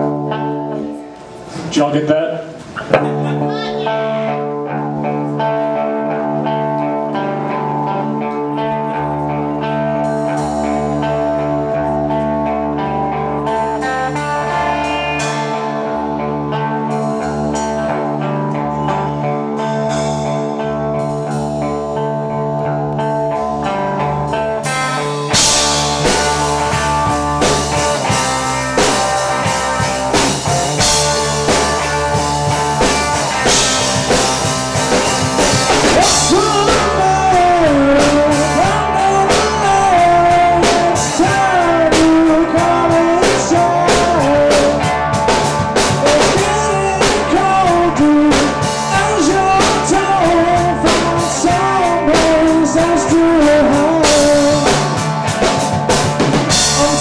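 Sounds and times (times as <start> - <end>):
drum kit: 0.0 - 5.2, 6.2 - 57.0
electric guitar chords: 0.0 - 57.0
rock band playing: 0.0 - 57.0
lead vocals: 25.3 - 57.0.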